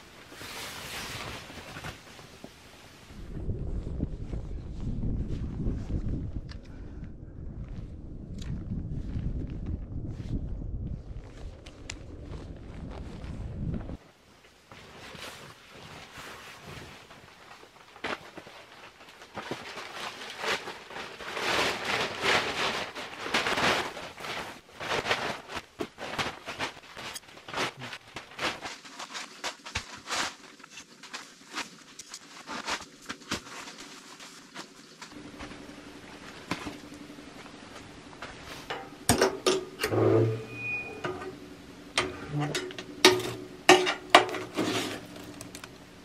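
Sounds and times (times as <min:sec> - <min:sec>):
canvas rustling: 0:00.0 - 0:03.2, 0:11.0 - 0:39.1
footsteps: 0:23.4 - 0:40.4.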